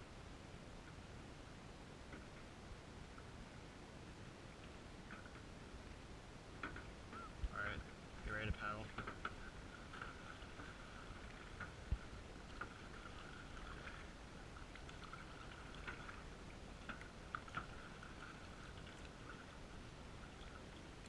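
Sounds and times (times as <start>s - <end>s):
paddle strokes through water: 4.4s - 21.0s.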